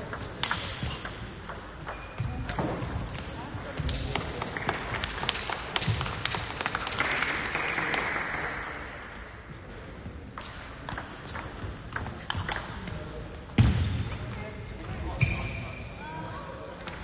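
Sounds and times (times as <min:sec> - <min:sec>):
table tennis balls clicking: 0:00.0 - 0:07.1, 0:10.4 - 0:12.8.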